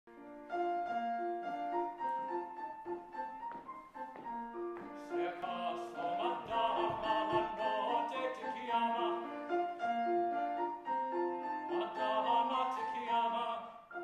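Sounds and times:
grand piano accompaniment: 0.1s - 14.0s
operatic singing voice: 5.0s - 9.4s, 11.6s - 13.9s.

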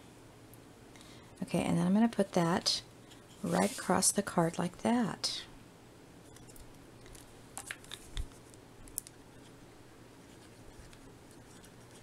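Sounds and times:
paper rustling: 3.4s - 4.0s.

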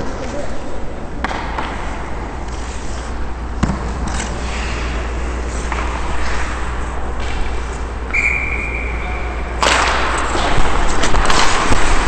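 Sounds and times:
skates scraping on ice: 1.6s - 7.9s, 9.6s - 12.0s.

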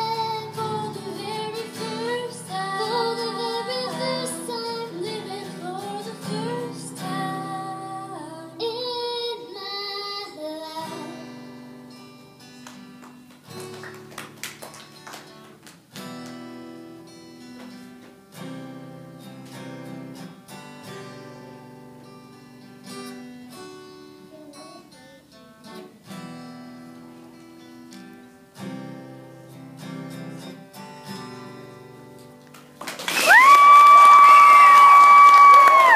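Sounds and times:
acoustic guitar strumming: 0.0s - 32.8s
audience cheering and whistling: 33.1s - 35.9s.

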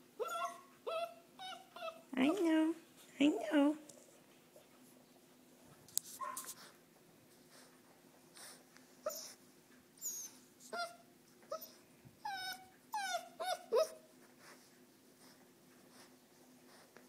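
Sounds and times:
puppy whimpering and whining: 0.1s - 2.4s, 9.0s - 9.4s, 10.0s - 14.1s.

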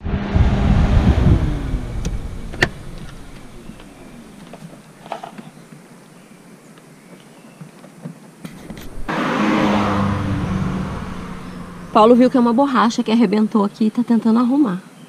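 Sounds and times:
vehicle engine falling in pitch: 0.0s - 4.8s, 8.6s - 13.2s
faint outdoor background: 0.0s - 15.0s.

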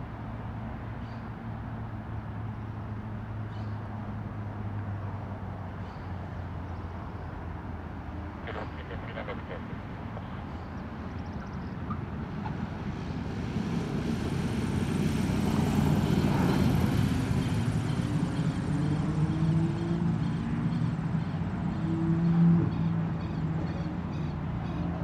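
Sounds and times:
propeller plane engine: 11.2s - 24.7s.

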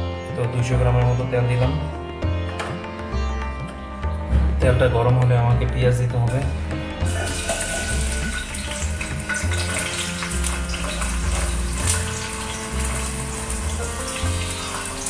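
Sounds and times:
music with steady bass beat: 0.0s - 15.0s
onions sizzling in hot oil: 7.0s - 15.0s.

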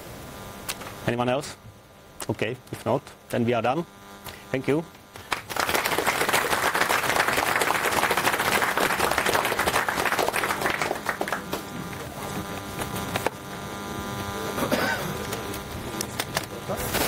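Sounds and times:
audience applauding: 5.2s - 11.7s.

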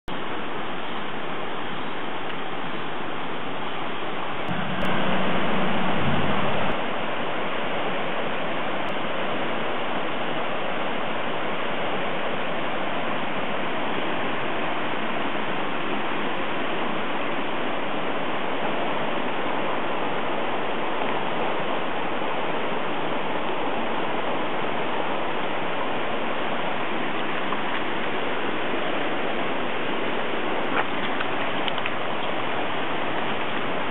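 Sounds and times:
rushing floodwater: 0.1s - 33.9s
loud low rumble: 4.4s - 7.6s.

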